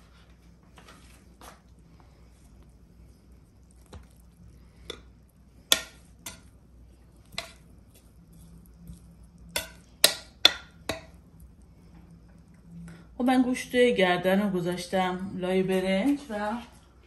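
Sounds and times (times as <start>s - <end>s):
metal spoon clinking on pot: 5.7s - 6.5s, 9.5s - 11.1s.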